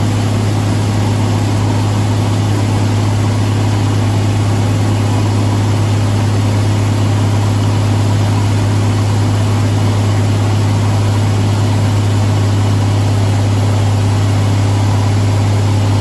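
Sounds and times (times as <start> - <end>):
diesel engine droning under load: 0.0 - 16.0.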